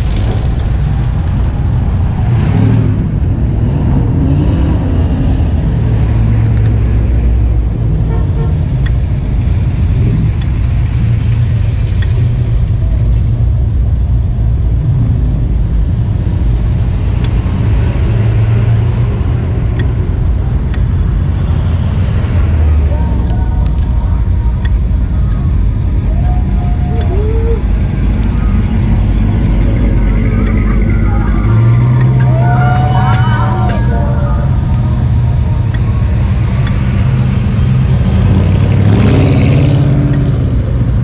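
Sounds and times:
car driving rumble: 0.0 - 41.0
faint irregular clicks: 33.4 - 37.4.

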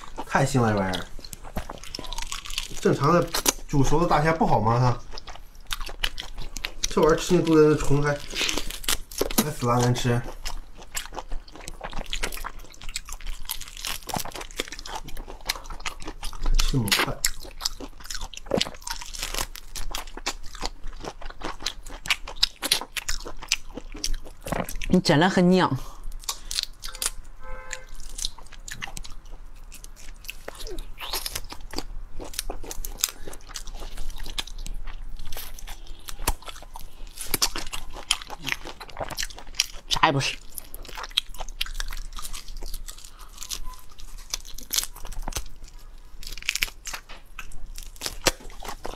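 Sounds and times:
chewing prawn crunches: 0.0 - 25.0, 26.0 - 48.9
prawn shell cracking and tearing: 40.5 - 48.9.

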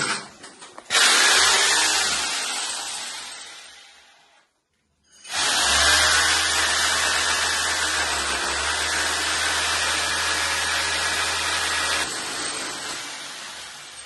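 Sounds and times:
power tool whirring: 0.9 - 4.3, 5.2 - 14.0.

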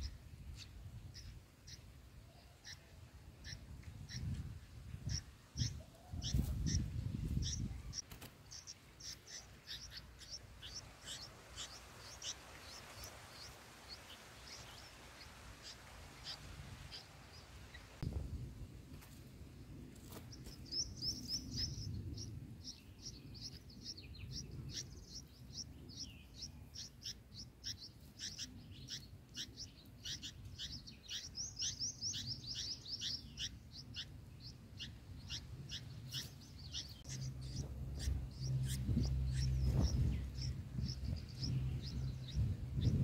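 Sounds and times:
nestlings chirping: 2.6 - 18.1, 20.0 - 43.0
low rumble: 37.0 - 43.0.

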